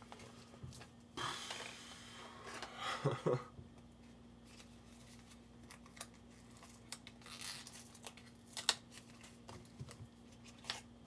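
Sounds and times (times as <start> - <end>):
faint steady hum: 0.0 - 11.0
pack tearing rustle: 4.5 - 9.5
plastic pack crinkling: 4.5 - 10.8.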